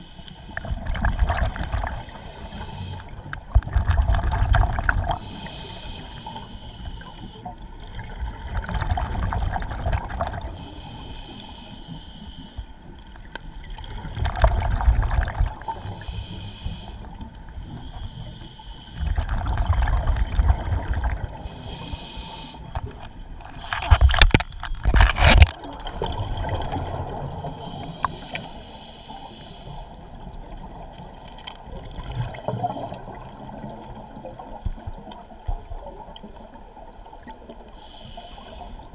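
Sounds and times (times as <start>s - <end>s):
exhaled bubbles gurgling: 0.0s - 6.3s, 7.6s - 10.7s, 13.6s - 17.8s, 19.0s - 28.4s, 29.9s - 38.9s
regulator inhalation hiss: 2.0s - 3.2s, 5.2s - 7.5s, 10.6s - 12.7s, 15.6s - 19.1s, 21.4s - 22.8s, 27.4s - 30.0s, 37.8s - 38.9s.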